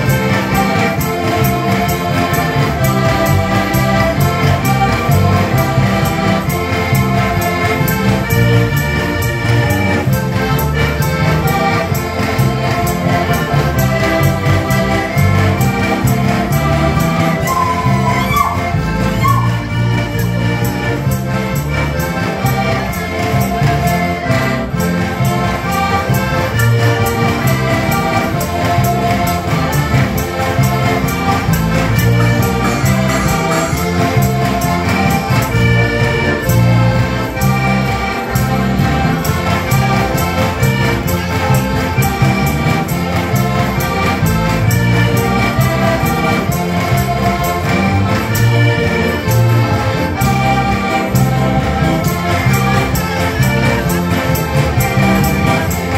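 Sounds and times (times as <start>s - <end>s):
bass guitar: 0.0s - 55.9s
button accordions: 0.0s - 55.9s.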